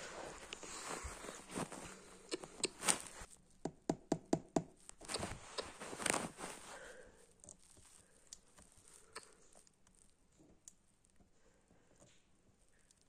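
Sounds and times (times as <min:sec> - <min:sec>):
rustling and knocks: 0:00.0 - 0:06.8.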